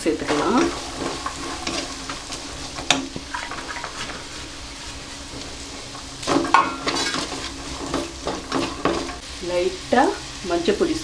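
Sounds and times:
spatula scraping vegetables in pan: 0.0 - 9.2
vegetables sizzling in oil: 0.0 - 11.0.

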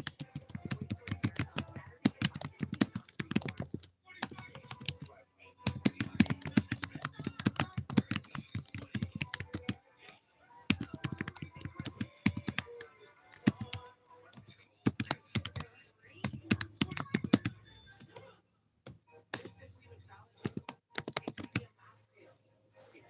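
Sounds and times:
typing on computer keyboard: 0.0 - 9.8, 10.7 - 18.2, 20.4 - 21.7.

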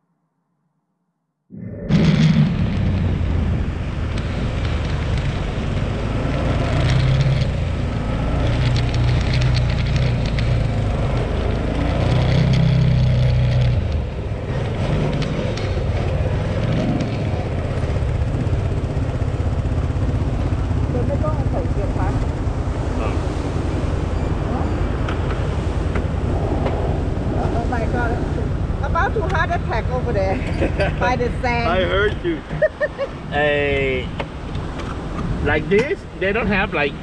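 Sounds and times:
quad bike engine revving: 1.9 - 23.7.

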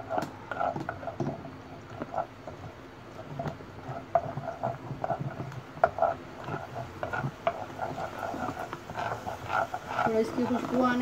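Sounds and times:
spatula scraping and tapping pan: 0.0 - 11.0
paste sizzling in hot oil: 3.2 - 11.0.

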